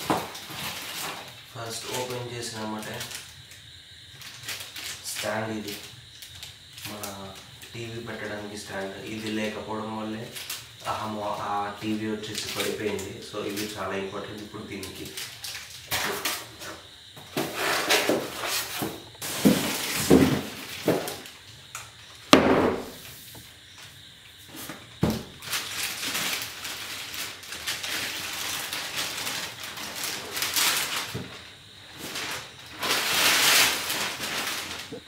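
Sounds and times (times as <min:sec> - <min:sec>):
sharp knocks and clunks: 0:22.3 - 0:23.0
packaging rustling: 0:25.4 - 0:35.0.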